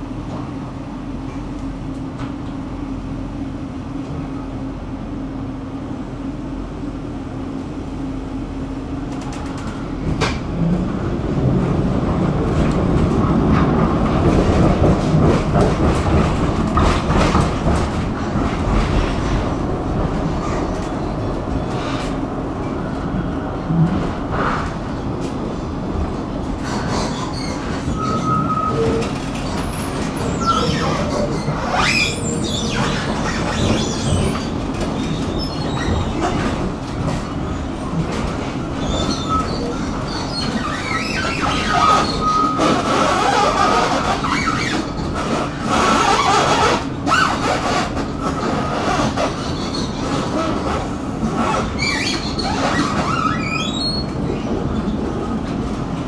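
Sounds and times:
tram motor hum: 0:00.0 - 0:56.0
tram wheels rumbling: 0:00.0 - 0:56.0
high wheel squeals: 0:27.0 - 0:36.4, 0:38.8 - 0:50.2.

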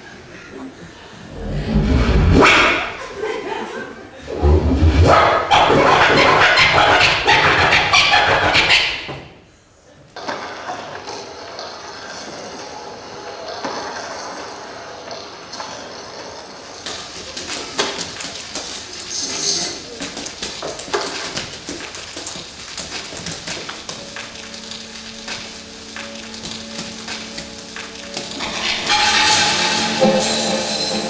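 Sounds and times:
haze of noise: 0:00.0 - 0:03.2
dense clicks and crackles: 0:16.7 - 0:29.4.

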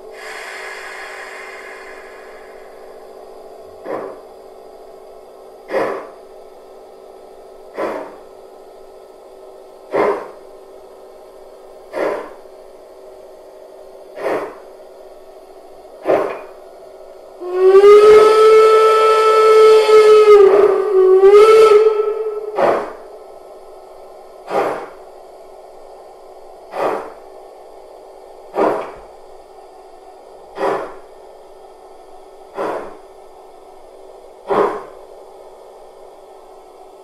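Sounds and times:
steam locomotive exhaust chuffs: 0:00.0 - 0:06.7, 0:07.5 - 0:08.4, 0:09.8 - 0:10.6, 0:11.6 - 0:12.7, 0:13.4 - 0:29.6, 0:30.3 - 0:36.6
steam whistle: 0:00.2 - 0:02.9, 0:17.4 - 0:22.9.

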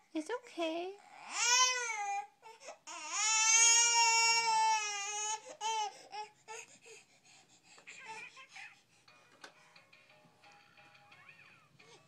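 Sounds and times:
baby crying: 0:01.0 - 0:06.8.

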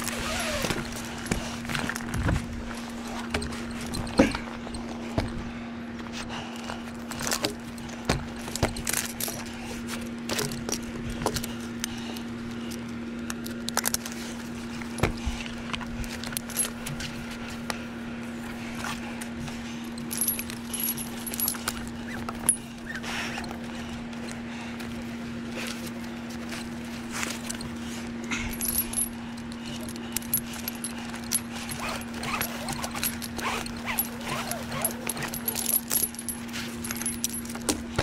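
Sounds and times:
steady low hum: 0:00.0 - 0:38.0
metal hardware clinking: 0:19.9 - 0:22.7, 0:28.4 - 0:38.0.

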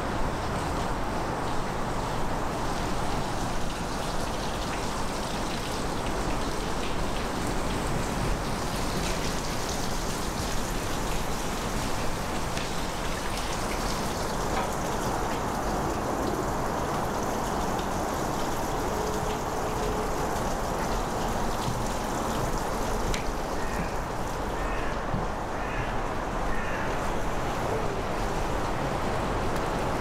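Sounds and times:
rushing splattering water: 0:00.0 - 0:30.0
faint drips and ticks: 0:00.5 - 0:25.8.

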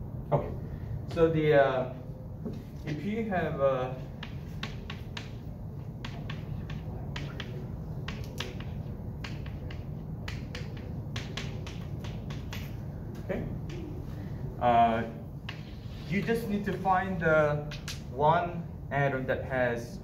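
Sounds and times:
steady low hum: 0:00.0 - 0:20.0
chalk tapping on blackboard: 0:04.0 - 0:14.0, 0:15.4 - 0:16.2.

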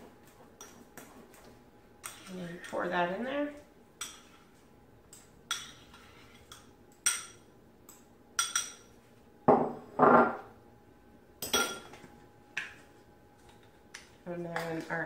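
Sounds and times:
fork scraping and clinking bowl: 0:02.0 - 0:02.7, 0:04.0 - 0:07.4
bowl knocking on counter: 0:09.5 - 0:10.4.

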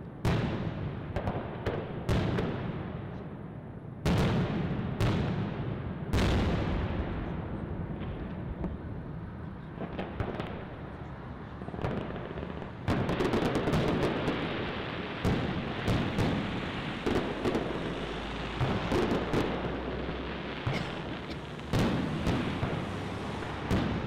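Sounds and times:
fireworks popping and banging: 0:09.6 - 0:24.0.

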